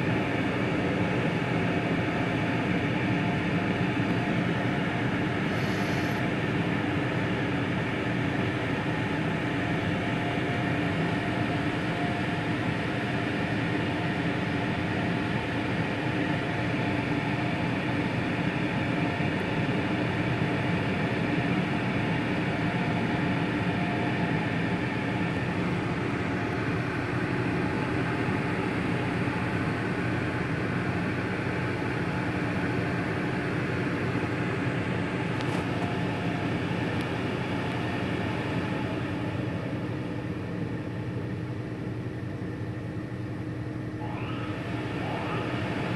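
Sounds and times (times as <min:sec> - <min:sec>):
car wash motors droning: 0:41.9 - 0:45.9.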